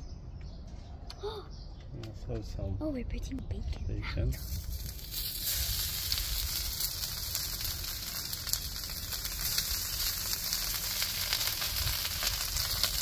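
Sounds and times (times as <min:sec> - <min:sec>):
bacon sizzling on griddle: 0:04.4 - 0:13.0.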